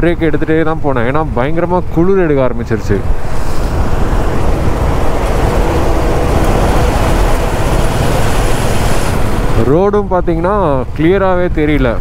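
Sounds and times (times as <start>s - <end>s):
wind on microphone: 2.8s - 11.8s
motorcycle engine running: 3.2s - 9.8s.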